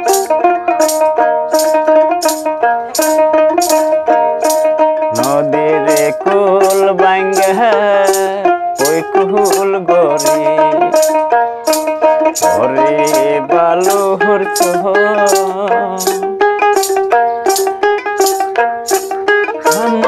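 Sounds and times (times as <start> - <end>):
plucked lute melody: 0.0 - 20.0
rattle keeping time: 0.0 - 20.0
man singing: 5.0 - 16.4, 19.5 - 20.0.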